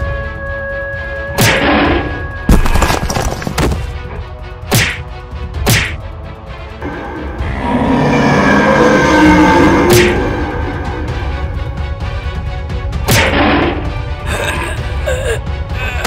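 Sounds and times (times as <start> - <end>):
background music: 0.0 - 16.0
sharp whacks and thuds: 1.4 - 3.8, 4.7 - 6.0, 13.0 - 13.9.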